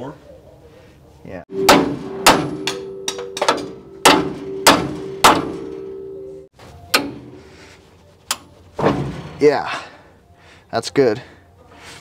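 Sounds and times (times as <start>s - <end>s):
hammer striking coil spring: 1.5s - 7.5s
spring ringing: 1.5s - 7.5s.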